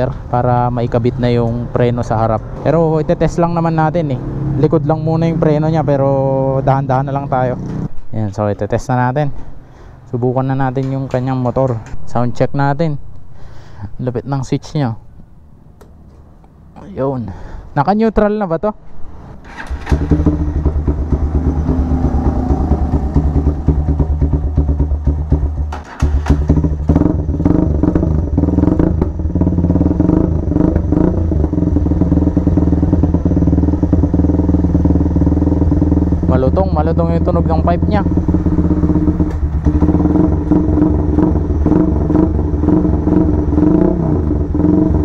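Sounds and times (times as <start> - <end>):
motorcycle engine starting and idling: 19.4 - 45.0.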